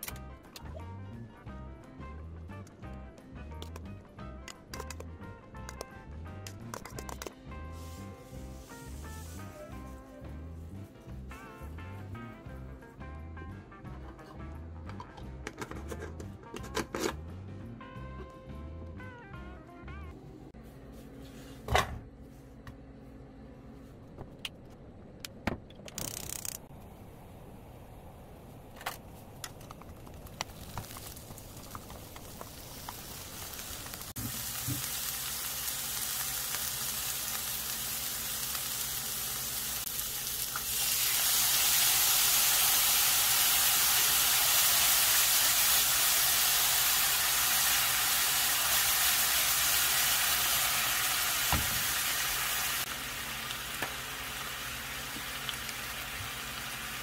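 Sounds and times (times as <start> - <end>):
onions sizzling in frying pan: 7.7 - 9.6, 30.4 - 57.0.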